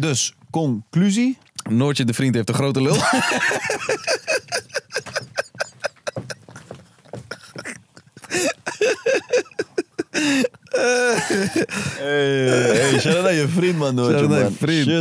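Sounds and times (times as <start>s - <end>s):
men laughing hard: 2.9s - 13.3s.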